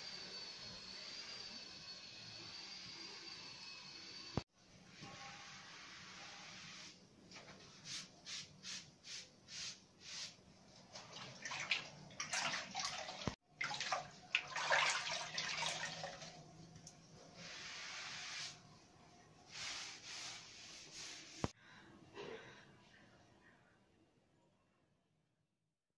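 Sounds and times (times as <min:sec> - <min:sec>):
water sloshing: 0:10.9 - 0:16.4
wet sponge wiping tiles: 0:17.3 - 0:18.8, 0:19.5 - 0:21.5.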